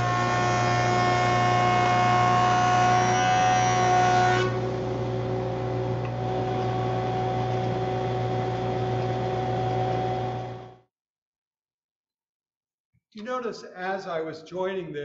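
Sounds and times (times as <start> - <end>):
jointer cutter head whine: 0.0 - 10.8
motor and dust collector hum: 0.0 - 10.8.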